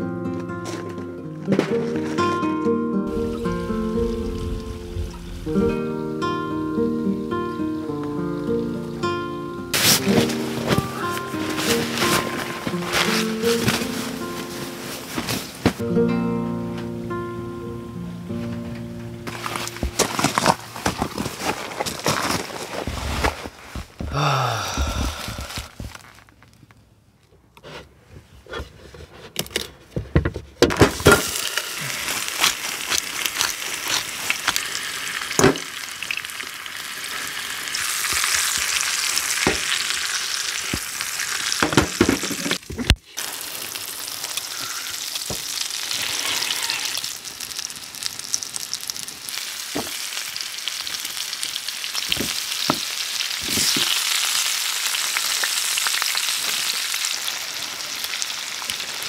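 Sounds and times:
food sizzling in frying pan: 3.1s - 9.0s, 9.7s - 15.6s, 19.3s - 20.3s, 31.0s - 59.0s.

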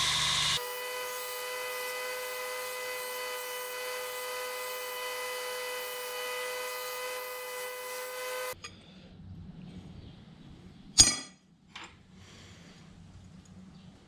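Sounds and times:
belt grinder grinding metal: 0.0s - 8.6s.

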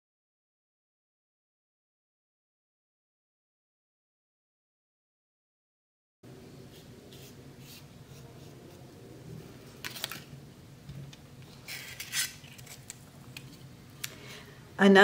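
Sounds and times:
faint hum: 6.3s - 15.0s.

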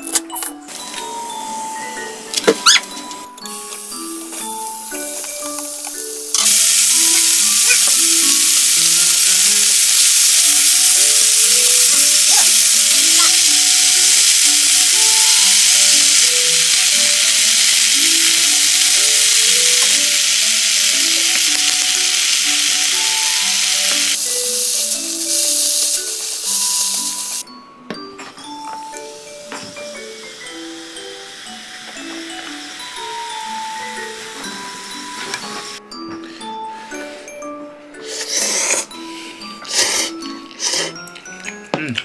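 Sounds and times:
vegetables sizzling in a hot pan: 3.4s - 27.4s, 28.8s - 35.8s.

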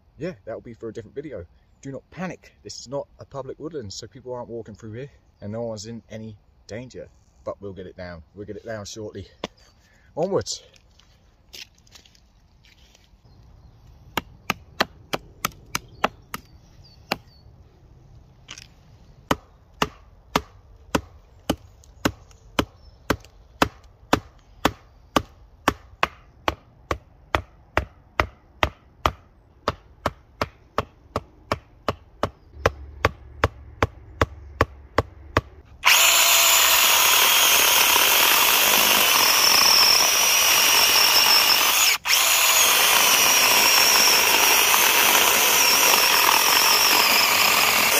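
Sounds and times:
electric chainsaw cutting log: 35.6s - 47.9s.

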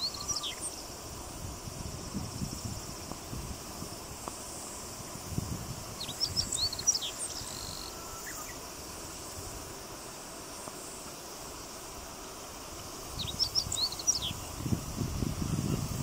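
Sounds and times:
high drone of insects: 0.0s - 16.0s
bunting singing: 13.1s - 16.0s.

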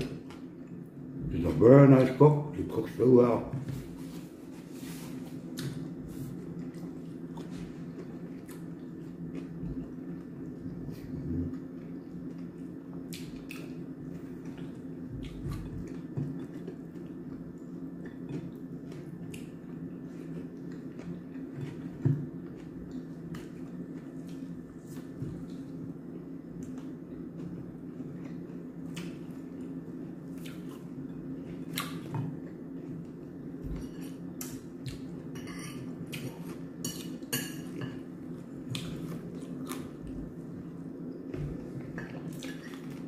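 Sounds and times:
low steady hum: 0.0s - 43.0s
crunching of chewing chicken: 38.5s - 40.4s.

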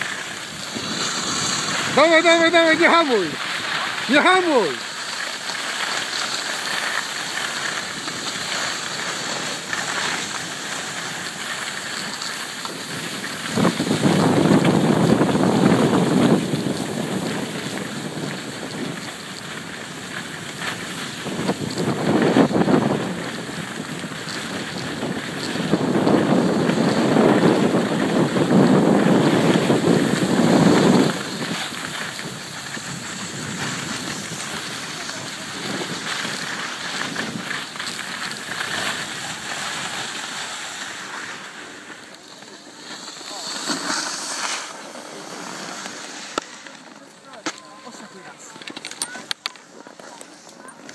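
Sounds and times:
steady hiss: 0.0s - 22.8s, 26.3s - 50.7s
wind buffeting microphone: 12.7s - 39.5s.

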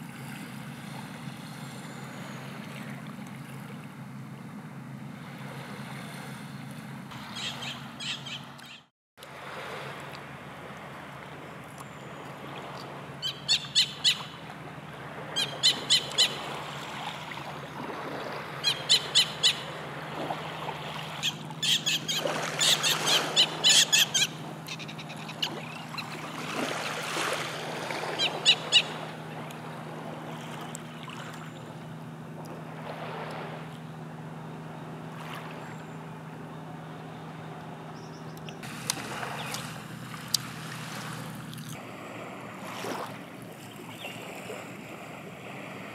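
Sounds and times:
steady low hum: 0.0s - 45.9s
bird calling high notes: 7.2s - 8.9s, 13.2s - 14.5s, 15.3s - 16.5s, 18.6s - 19.8s, 21.2s - 26.3s.

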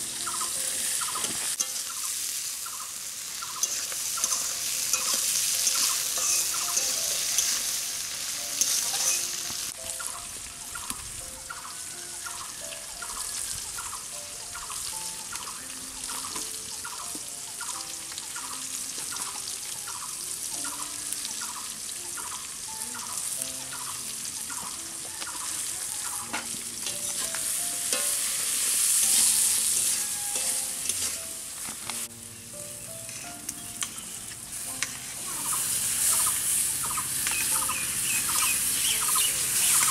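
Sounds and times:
light background music: 0.0s - 39.9s
vegetables sizzling in hot oil: 0.0s - 39.9s
metal spatula stirring: 0.8s - 2.4s, 3.4s - 9.5s, 26.2s - 32.0s, 33.1s - 34.0s.

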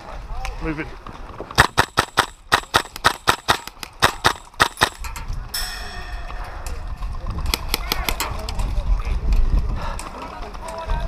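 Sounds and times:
airsoft rifle shots: 1.6s - 5.2s, 7.5s - 8.4s.

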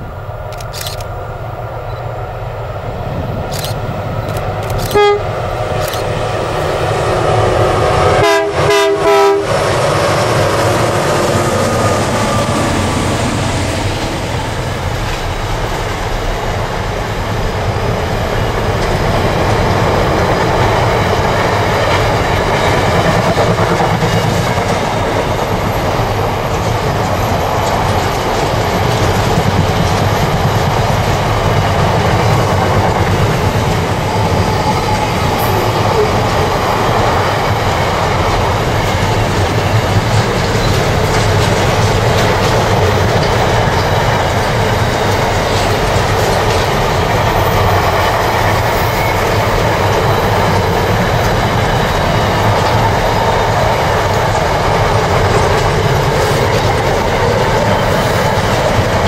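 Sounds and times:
train wheels rumbling on rails: 0.0s - 59.0s
locomotive horn blasts: 4.9s - 5.4s, 8.0s - 9.7s.

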